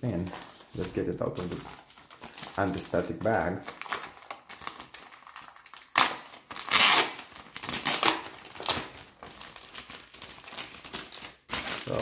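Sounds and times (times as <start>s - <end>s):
plastic bag crinkling and rustling: 0.0s - 12.0s.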